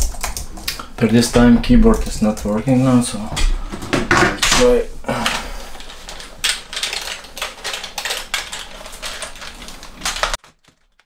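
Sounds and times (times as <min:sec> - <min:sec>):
small hard objects clattering: 0:04.4 - 0:11.0.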